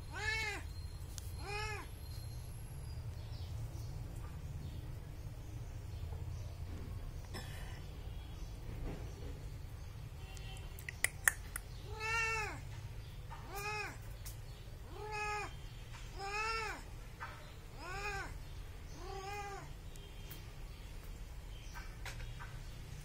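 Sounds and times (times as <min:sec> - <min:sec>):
cat meowing: 0:00.0 - 0:00.7, 0:01.4 - 0:01.9, 0:11.8 - 0:12.6, 0:13.4 - 0:14.0, 0:14.9 - 0:16.9, 0:17.7 - 0:18.4, 0:19.0 - 0:19.7
sharp clicks: 0:10.8 - 0:11.8.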